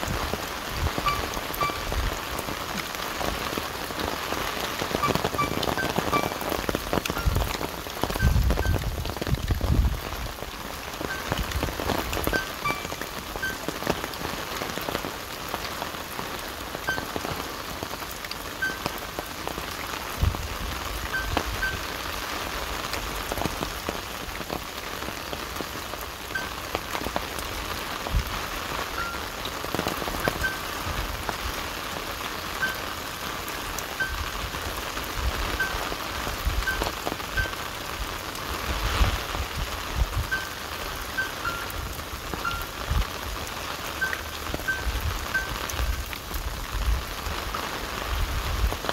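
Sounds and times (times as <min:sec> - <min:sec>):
rain on leaves: 0:00.0 - 0:48.9
drops ticking: 0:00.8 - 0:03.3, 0:04.6 - 0:09.7, 0:10.9 - 0:14.2, 0:16.8 - 0:19.4, 0:21.0 - 0:22.0, 0:26.4 - 0:27.2, 0:29.0 - 0:30.8, 0:40.3 - 0:42.8, 0:44.0 - 0:46.3.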